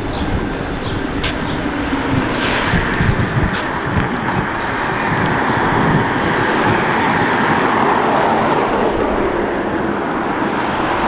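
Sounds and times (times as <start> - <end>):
street traffic noise: 0.0 - 11.0.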